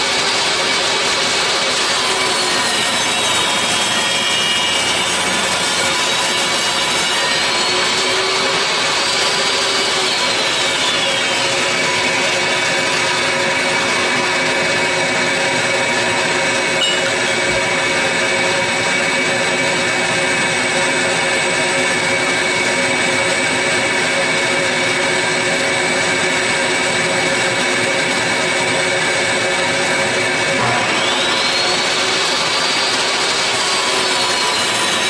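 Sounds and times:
dust collector and fan drone: 0:00.0 - 0:35.0
table saw ripping wood: 0:00.6 - 0:19.2, 0:30.0 - 0:35.0.

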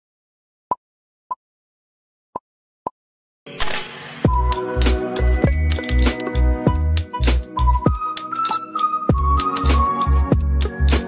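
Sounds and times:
sharp click sound effects: 0:03.5 - 0:11.0.

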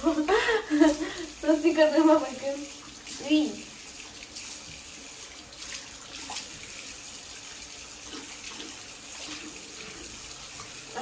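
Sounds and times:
hands scrubbing and rinsing: 0:00.0 - 0:11.0
small water splashes: 0:02.2 - 0:11.0.

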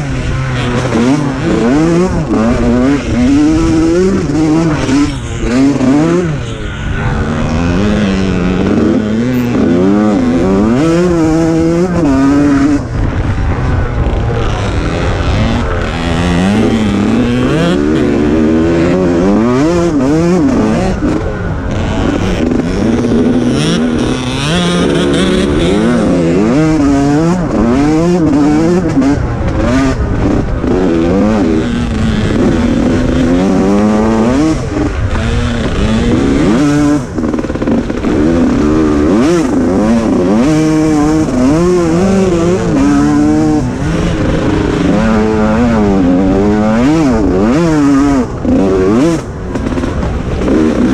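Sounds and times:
racing engine revving: 0:00.0 - 0:50.9
wind and ground noise rumble: 0:00.0 - 0:50.9.

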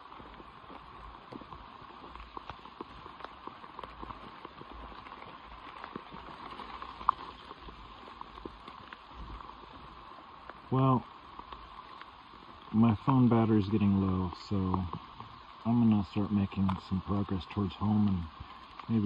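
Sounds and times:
boots crunching on forest floor: 0:00.0 - 0:19.0
steady hiss: 0:00.0 - 0:19.0.

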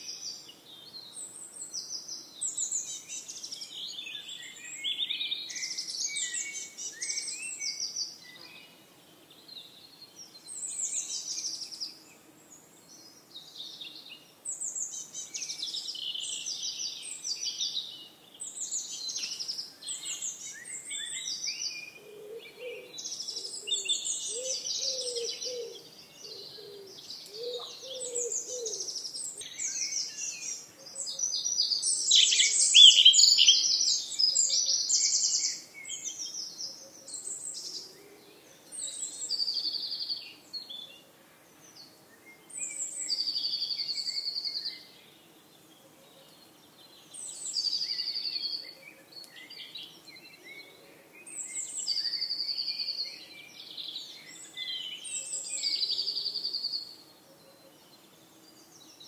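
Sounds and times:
songbirds singing and chirping: 0:00.0 - 0:59.0
low-pitched bird notes: 0:32.2 - 0:33.7.

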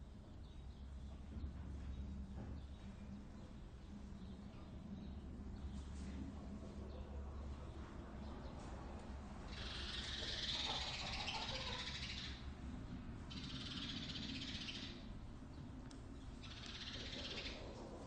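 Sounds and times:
steady low hum: 0:00.0 - 0:18.0
chickens squawking: 0:09.5 - 0:12.5, 0:16.6 - 0:18.0.

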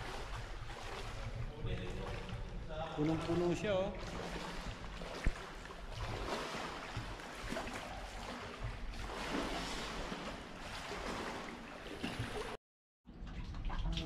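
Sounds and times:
water sloshing and splashing: 0:00.0 - 0:14.0.

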